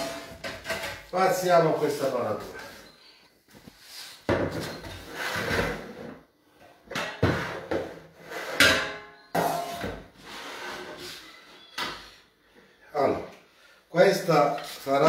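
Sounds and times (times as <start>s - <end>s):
kitchenware knocking and scraping: 0.0s - 1.1s, 6.9s - 10.1s.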